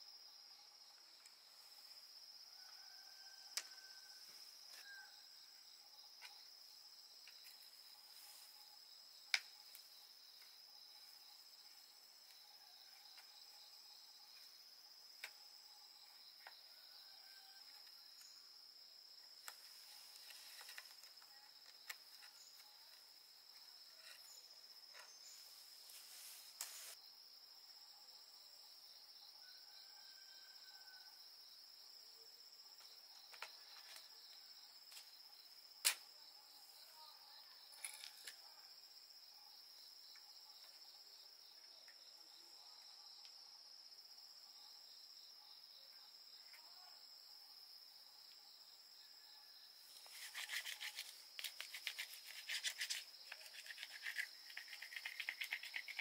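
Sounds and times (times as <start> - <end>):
high-pitched insect chirring: 50.0 - 56.0.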